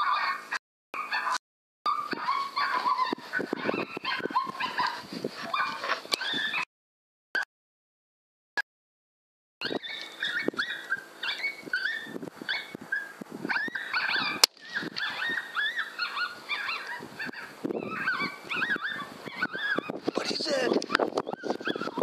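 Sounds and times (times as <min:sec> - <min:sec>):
electronic animal distress calls: 0:09.6 - 0:22.0.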